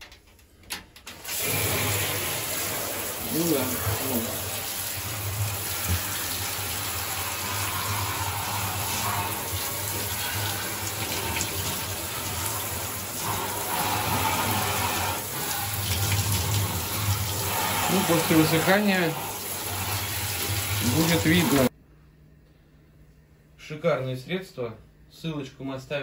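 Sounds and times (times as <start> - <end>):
shower spray on plastic parts: 1.1 - 21.7.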